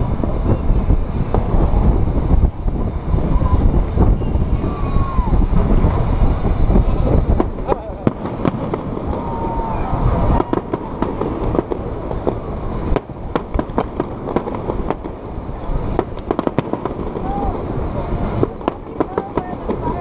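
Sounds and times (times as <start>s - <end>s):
fireworks popping: 0.0s - 20.0s.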